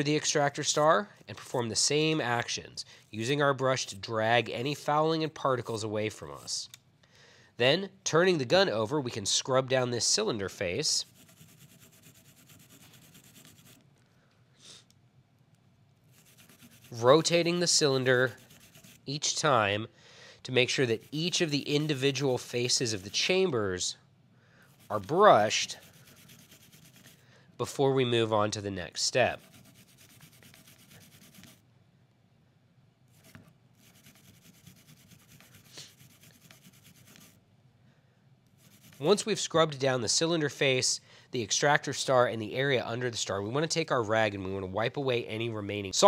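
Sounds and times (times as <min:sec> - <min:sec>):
metal brush scratching metal: 0:10.6 - 0:13.8, 0:16.1 - 0:19.4, 0:20.6 - 0:23.6, 0:24.7 - 0:27.2, 0:29.0 - 0:31.6, 0:33.1 - 0:37.4, 0:38.6 - 0:39.3.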